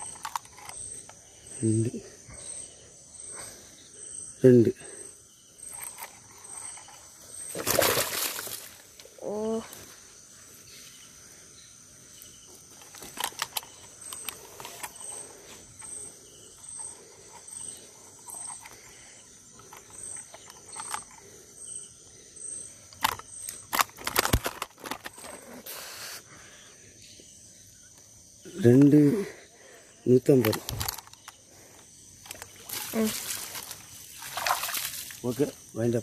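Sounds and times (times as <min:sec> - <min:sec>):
crickets chirping: 0:00.0 - 0:36.0
insect hiss: 0:00.0 - 0:36.0
knocks and rustles of handling: 0:23.0 - 0:25.5.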